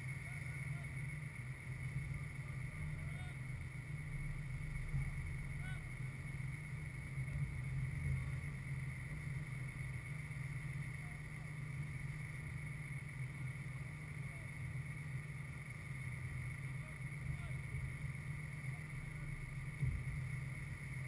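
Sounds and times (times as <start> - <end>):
distant shouts from players: 2.2 - 4.0, 5.4 - 6.2, 16.6 - 17.8.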